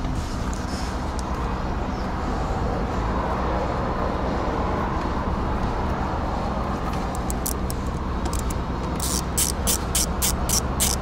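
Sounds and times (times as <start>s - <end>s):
low vehicle rumble: 0.0s - 11.0s
socket ratchet clicking: 7.1s - 11.0s.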